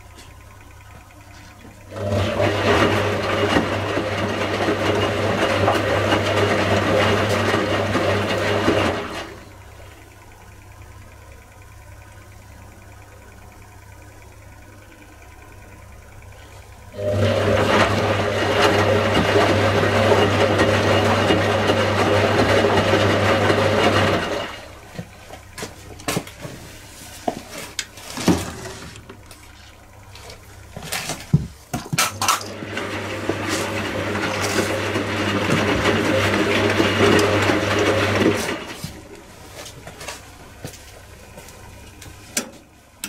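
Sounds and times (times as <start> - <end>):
washing machine motor humming: 0.0 - 43.0.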